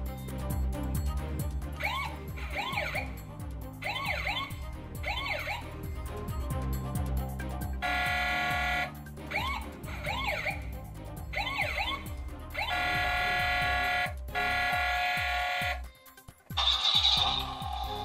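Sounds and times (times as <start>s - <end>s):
background music: 0.0s - 18.0s
wailing toy siren: 3.8s - 5.7s, 11.4s - 15.8s
electronic toy horn blare: 7.8s - 10.6s, 11.4s - 15.9s, 16.6s - 17.8s.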